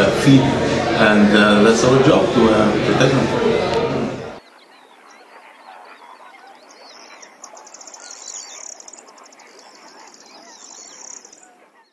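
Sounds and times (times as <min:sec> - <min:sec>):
chorus of birds chirping: 0:03.2 - 0:11.9.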